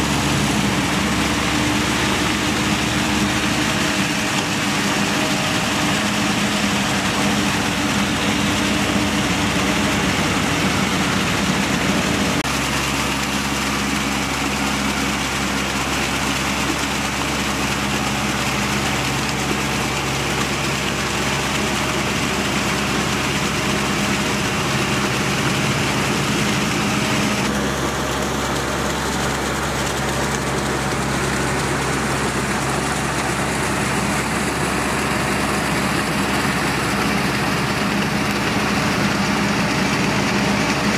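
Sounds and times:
tractor engine running under load: 0.0 - 40.9.

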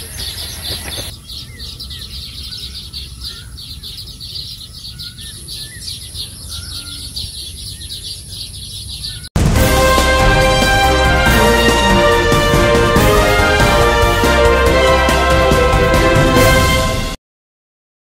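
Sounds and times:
small birds chirping: 0.0 - 9.4.

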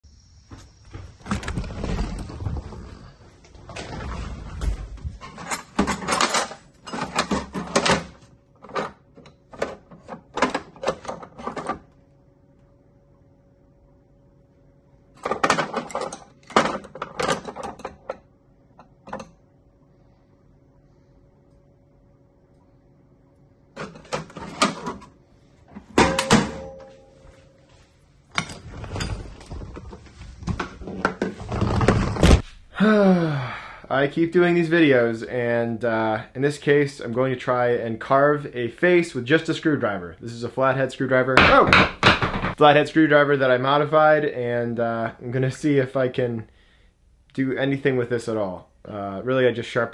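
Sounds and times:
door opening: 0.5 - 6.4
metal drawer sliding open: 3.6 - 8.9, 28.4 - 32.4
screwdrivers clattering: 5.0 - 11.8, 15.2 - 18.2, 23.8 - 25.1, 25.8 - 27.0, 28.3 - 29.8.

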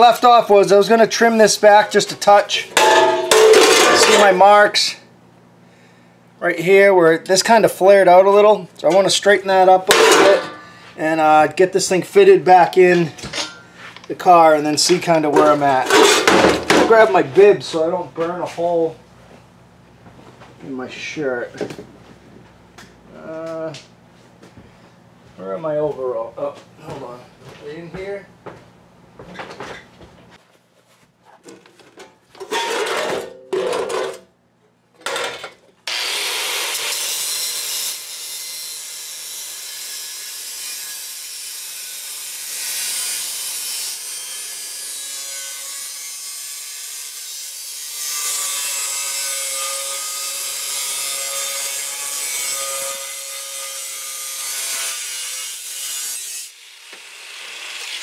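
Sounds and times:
angle grinder cutting steel: 35.9 - 58.0.

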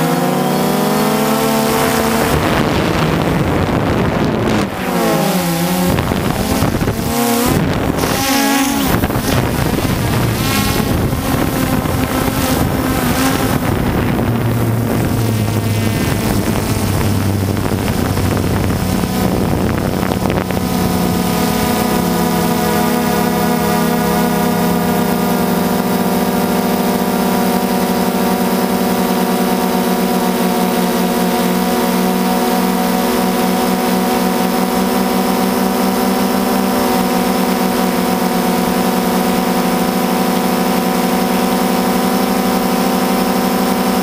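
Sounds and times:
drone propellers whining: 0.0 - 44.0
wind on microphone: 0.6 - 28.8.

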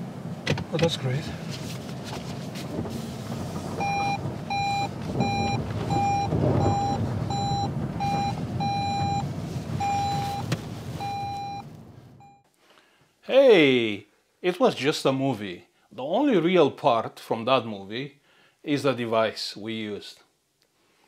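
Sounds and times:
low cabin rumble: 0.0 - 12.4
car warning beeps: 3.8 - 12.5.

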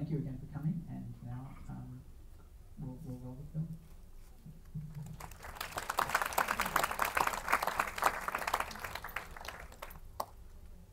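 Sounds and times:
audience applauding: 5.0 - 10.4.

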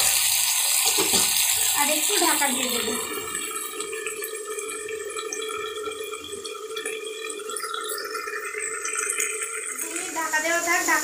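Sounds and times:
food sizzling in a covered pan: 0.0 - 3.8, 7.9 - 11.0.

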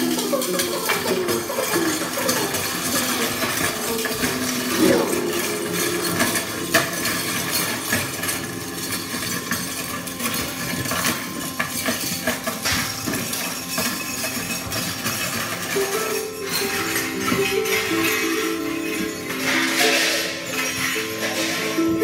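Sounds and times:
metal and wooden objects clattering: 0.0 - 22.0
pitched percussion notes: 0.0 - 22.0.

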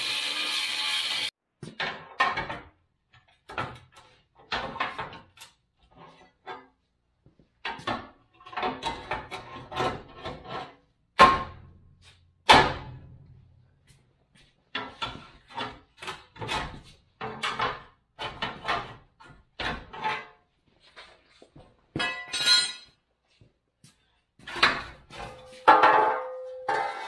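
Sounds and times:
metal knocks and clanks: 14.7 - 20.4, 24.4 - 27.0.

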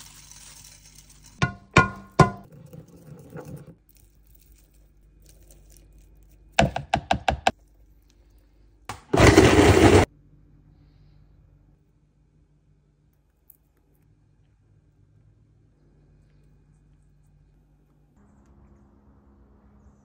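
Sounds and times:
blender running: 8.9 - 10.1.

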